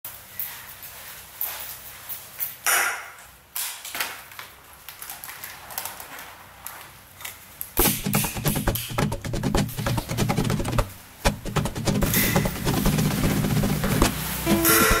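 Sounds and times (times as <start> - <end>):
helmet rustling and tapping: 6.7 - 15.0
rhythmic percussive music: 7.8 - 15.0.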